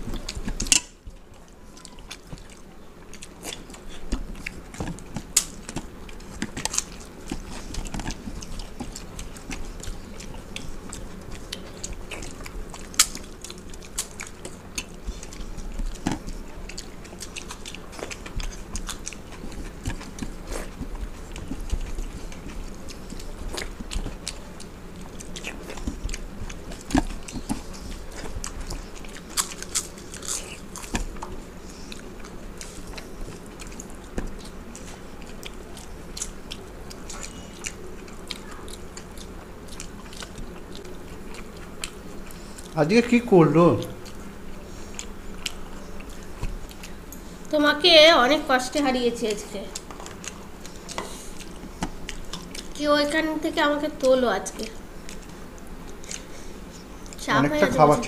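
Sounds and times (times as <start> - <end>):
crunching of fried papad: 0.0 - 47.6
chewing: 0.0 - 58.0.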